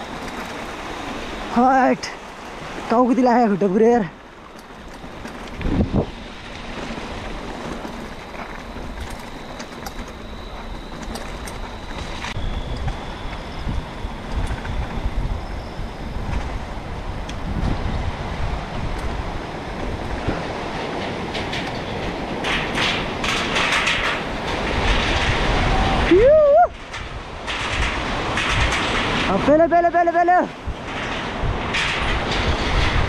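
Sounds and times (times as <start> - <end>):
rattling and clatter: 0.0 - 1.6, 3.5 - 26.0, 26.8 - 33.0
bicycle rolling over dirt trail: 0.0 - 33.0
person shouting: 25.9 - 26.8.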